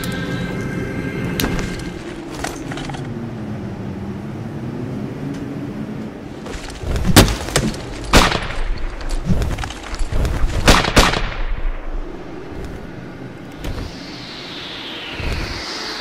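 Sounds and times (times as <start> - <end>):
gunshots: 10.6 - 11.6
low rumble: 11.2 - 16.0.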